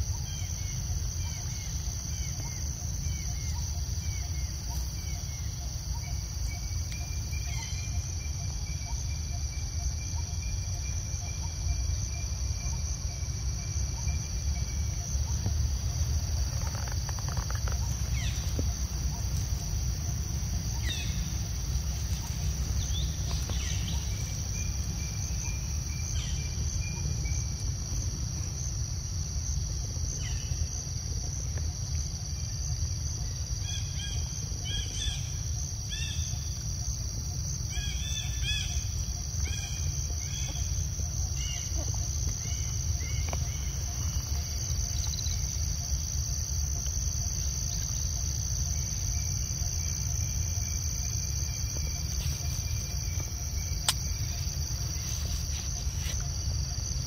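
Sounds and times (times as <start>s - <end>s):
insect drone: 0.0s - 57.0s.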